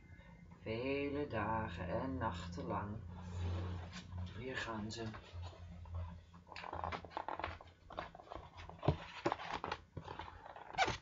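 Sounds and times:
paper rustling: 5.1 - 11.0.

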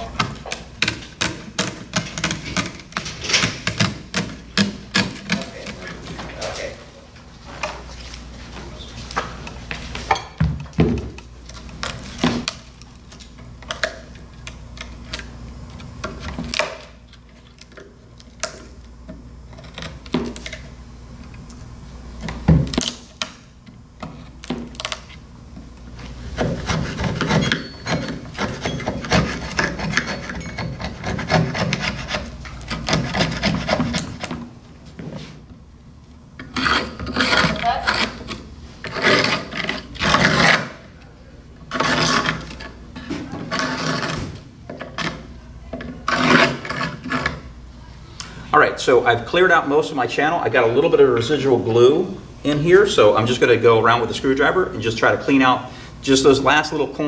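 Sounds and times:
screwdriver scraping: 26.4 - 34.4, 36.4 - 40.7.

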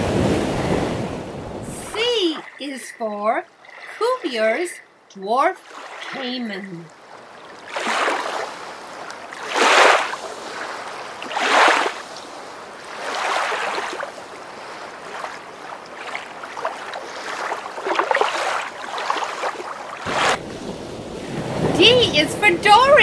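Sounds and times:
rushing water: 0.0 - 23.0.

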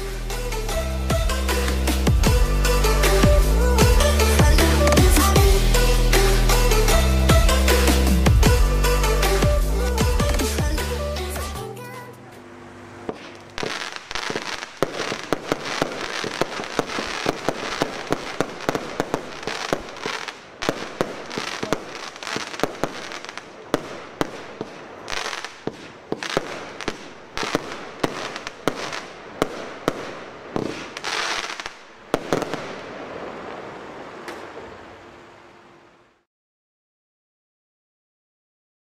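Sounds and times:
sizzling firework crackle: 0.0 - 12.0, 13.0 - 36.2
firework bangs: 13.0 - 35.8.

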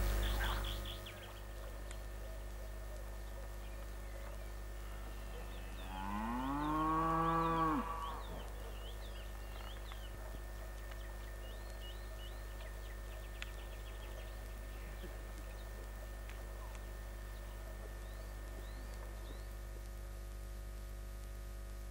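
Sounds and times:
small birds chirping: 0.0 - 20.0
cow mooing: 4.9 - 8.4.

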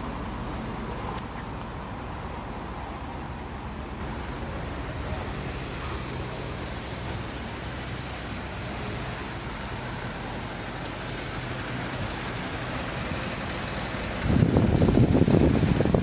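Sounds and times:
distant low rumble and hiss: 0.0 - 16.0.

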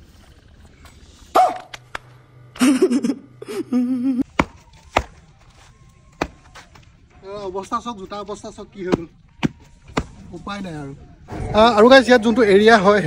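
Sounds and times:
person humming: 2.6 - 4.2
person making vocal noises: 3.4 - 4.2
shoes stamping on dirt: 4.3 - 7.0, 8.8 - 10.3.

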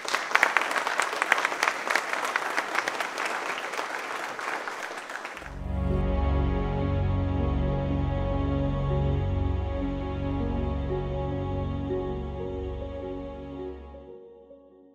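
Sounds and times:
audience applauding: 0.0 - 5.7
instrumental music with low tones: 5.5 - 14.9.

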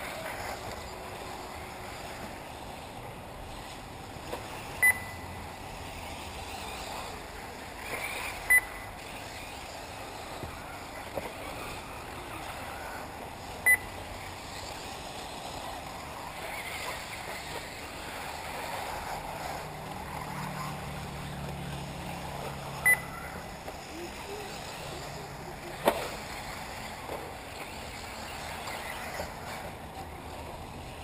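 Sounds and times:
steady outdoor hiss: 0.0 - 31.0
short electronic beeps: 4.8 - 5.3, 8.4 - 8.8, 13.6 - 14.0, 22.8 - 23.2.

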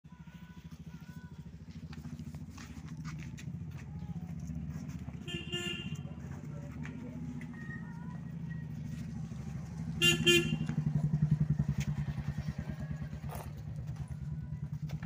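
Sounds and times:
vehicle engine running: 0.1 - 15.0
vehicle horn beeps: 5.0 - 6.4, 10.0 - 10.9.

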